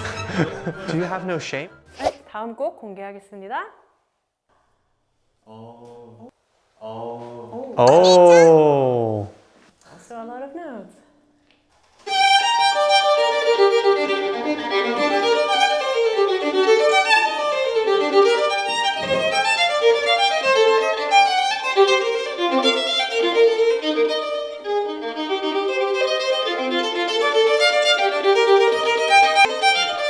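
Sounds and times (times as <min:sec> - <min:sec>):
solo violin playing fast notes: 0:12.1 - 0:30.0.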